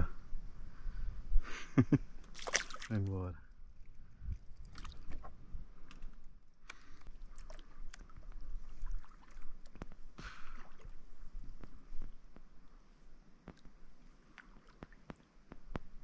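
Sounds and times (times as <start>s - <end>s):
water sloshing against hull: 2.3s - 11.8s.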